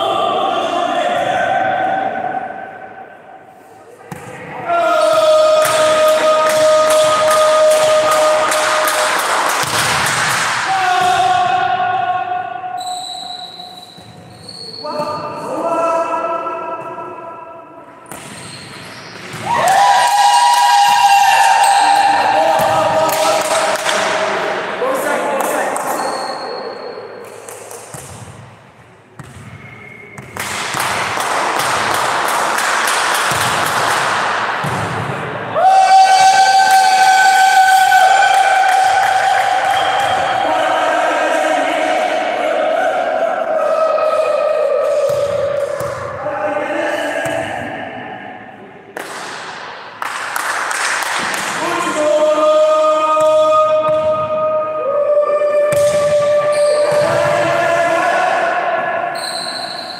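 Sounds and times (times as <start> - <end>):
loud gymnasium din with clicks: 3.9 - 15.5, 17.9 - 59.9
volleyball bouncing on wooden floor: 33.2 - 34.0, 34.6 - 35.2.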